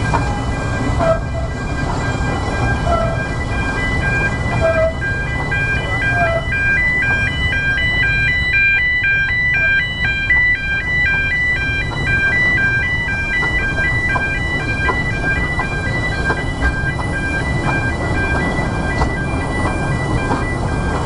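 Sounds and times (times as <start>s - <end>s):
jingly electronic beeping tune: 0.0s - 21.0s
train rumbling: 0.0s - 21.0s
wheels clicking on rails: 0.0s - 21.0s.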